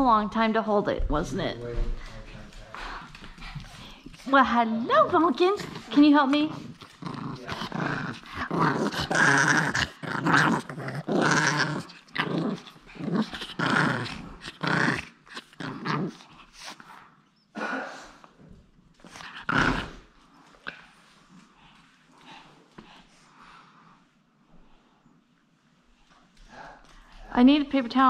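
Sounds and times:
dog growling: 0:01.6 - 0:17.0, 0:19.0 - 0:20.9.

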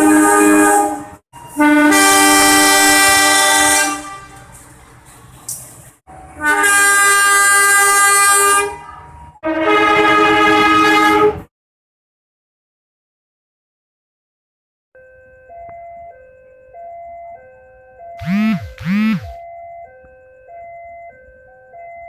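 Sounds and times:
locomotive horn blasts: 0:00.0 - 0:04.6, 0:06.1 - 0:11.5.

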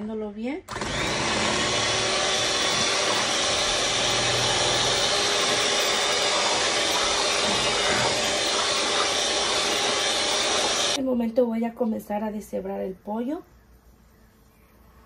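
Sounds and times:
electric hand mixer whisking: 0:00.7 - 0:11.0.

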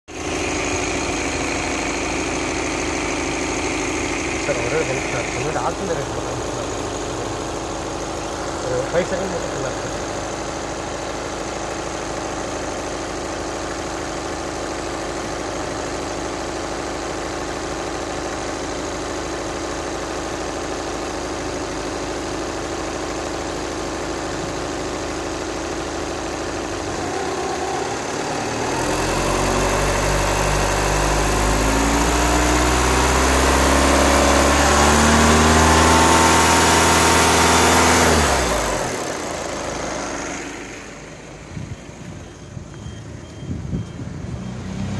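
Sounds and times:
vehicle engine idling and revving: 0:00.0 - 0:44.9.

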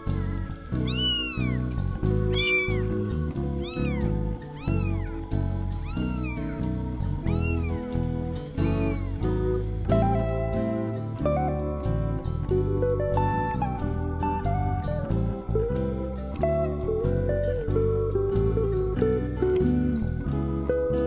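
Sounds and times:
background guitar music: 0:00.0 - 0:21.0
kitten mewing: 0:00.8 - 0:09.3.

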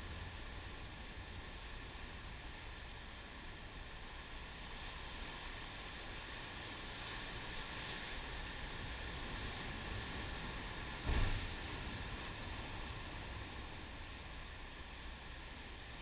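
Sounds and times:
surf breaking over rocks: 0:09.1 - 0:14.2.

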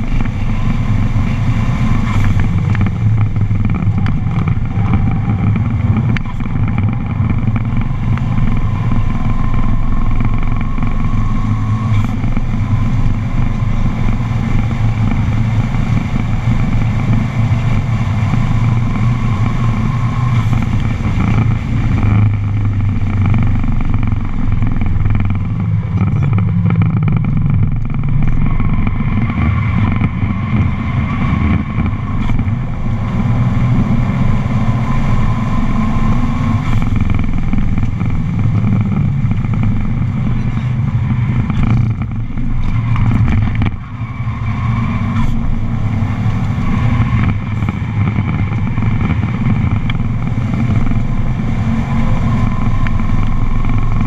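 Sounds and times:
car engine accelerating: 0:00.0 - 0:54.0
wind and road noise: 0:00.0 - 0:54.0.

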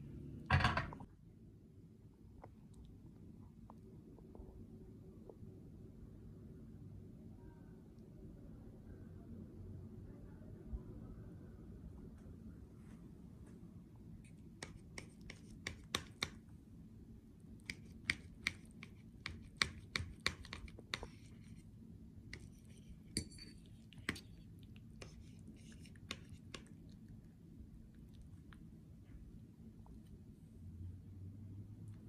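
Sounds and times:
cutlery scraping ceramic plate: 0:22.4 - 0:23.7.

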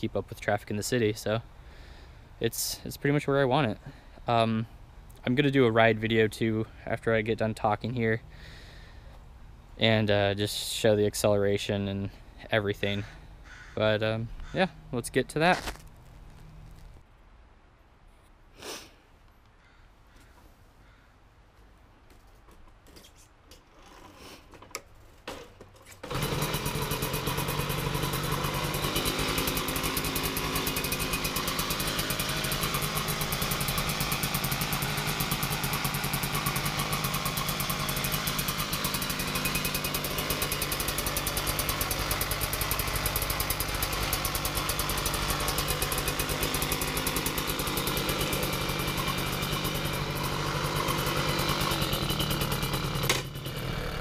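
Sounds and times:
moped engine starting and idling: 0:25.2 - 0:54.0.

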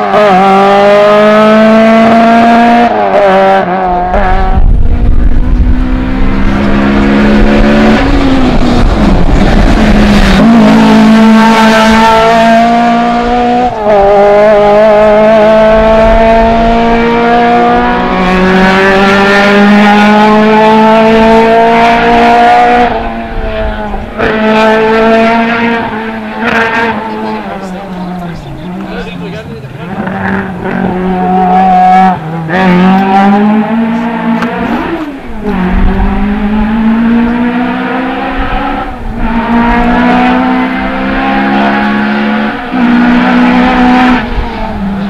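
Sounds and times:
rally car engine revving through gears: 0:00.0 - 0:45.0.

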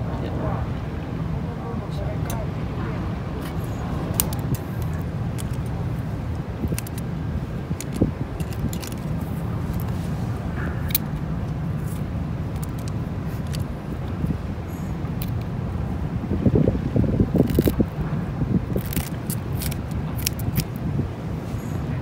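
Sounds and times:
low outdoor rumble: 0:00.0 - 0:22.0
scissors clicking and snipping: 0:03.4 - 0:05.8, 0:06.6 - 0:07.0, 0:07.8 - 0:09.9, 0:10.7 - 0:11.2, 0:17.4 - 0:17.8, 0:18.8 - 0:20.8.

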